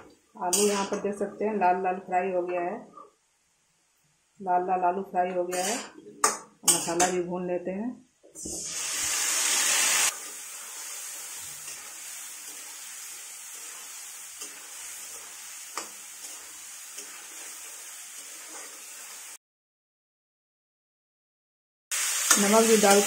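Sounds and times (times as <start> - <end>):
metal spatula scraping pan: 0.5 - 1.0, 5.5 - 6.0, 8.4 - 19.2
frying sizzle: 8.4 - 19.4, 21.9 - 23.0
paste sizzling in hot oil: 8.4 - 19.4, 21.9 - 23.0.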